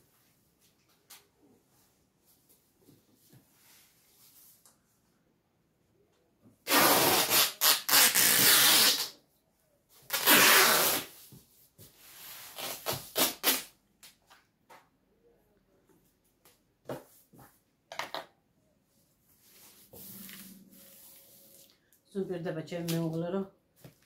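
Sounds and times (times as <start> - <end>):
tape ripping off roll: 6.6 - 9.2, 10.1 - 11.2, 12.6 - 13.7.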